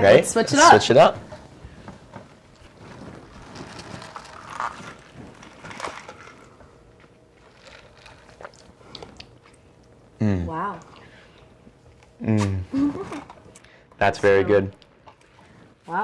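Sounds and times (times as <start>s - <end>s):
plastic cups rustling and clicking: 1.3s - 9.6s.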